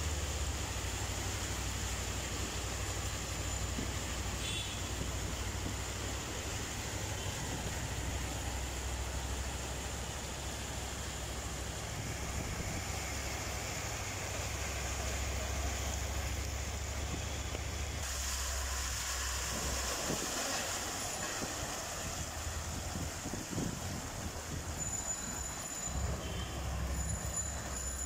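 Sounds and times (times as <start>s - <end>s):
floodwater and rain rushing: 0.0s - 28.0s
wind rumble on microphone: 11.8s - 13.1s, 21.2s - 26.4s.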